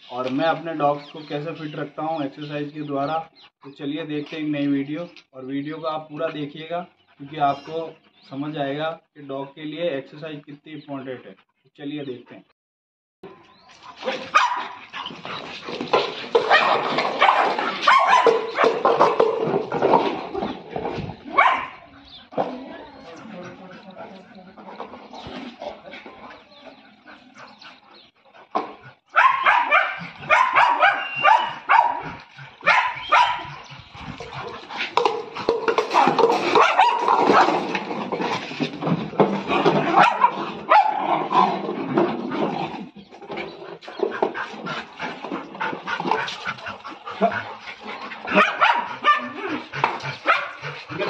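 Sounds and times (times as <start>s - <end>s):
dogs barking excitedly: 13.7s - 51.0s.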